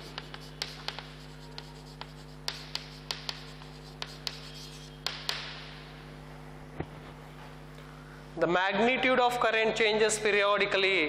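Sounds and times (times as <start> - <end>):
chalk tapping and scratching: 0.0 - 5.8
steady low hum: 0.0 - 10.3.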